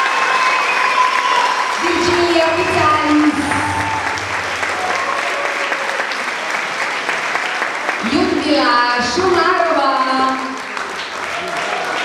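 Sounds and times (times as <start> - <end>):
crowd clapping: 0.0 - 12.0
voices: 1.8 - 4.2.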